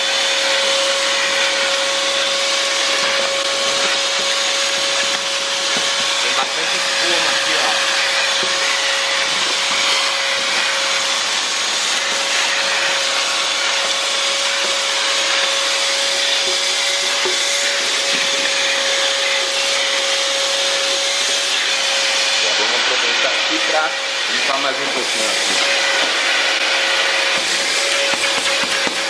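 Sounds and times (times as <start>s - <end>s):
vacuum cleaner running: 0.0s - 29.0s.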